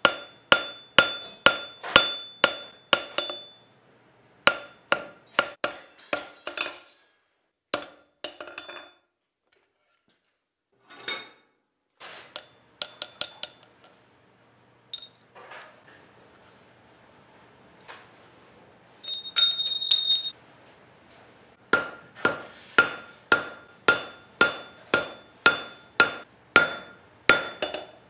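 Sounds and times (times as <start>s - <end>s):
hammer striking metal on anvil: 0.0s - 3.7s, 4.5s - 6.7s, 12.4s - 14.0s, 21.7s - 28.0s
tongs clinking on anvil: 12.4s - 14.0s, 14.9s - 15.2s, 19.0s - 20.4s.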